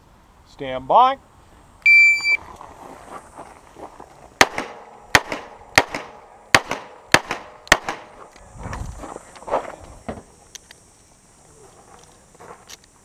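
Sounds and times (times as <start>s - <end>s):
shot timer beep: 1.8s - 2.4s
handgun shots with echo: 4.4s - 8.1s.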